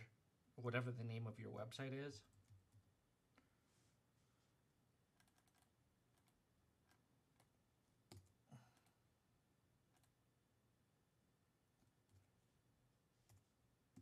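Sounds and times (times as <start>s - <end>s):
keyboard typing: 5.2s - 8.9s, 9.9s - 10.2s, 11.8s - 12.4s.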